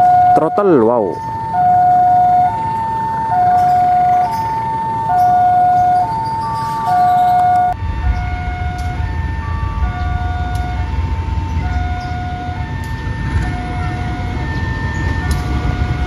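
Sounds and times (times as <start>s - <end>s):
level crossing two-tone alarm: 0.0s - 16.0s
low rumble: 7.4s - 16.0s.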